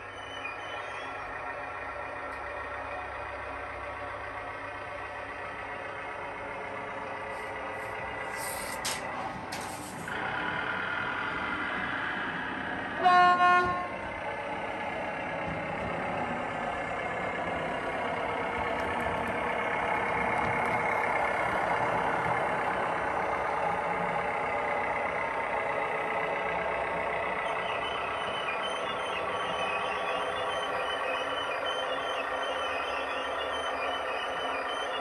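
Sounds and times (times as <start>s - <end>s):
recorded diesel engine running: 0.0s - 35.0s
model train horn blast: 13.0s - 14.0s.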